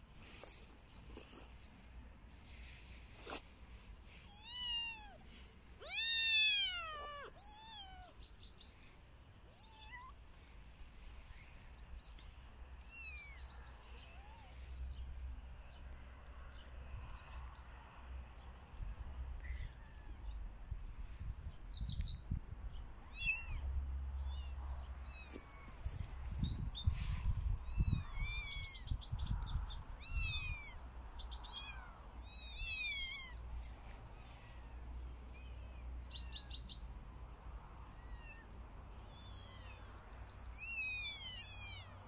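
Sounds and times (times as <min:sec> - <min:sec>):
kitten meowing: 0:04.3 - 0:05.2, 0:05.8 - 0:08.2, 0:09.5 - 0:10.2, 0:12.9 - 0:13.4, 0:23.1 - 0:23.6, 0:27.6 - 0:28.8, 0:30.0 - 0:30.8, 0:31.5 - 0:33.4, 0:37.9 - 0:38.5.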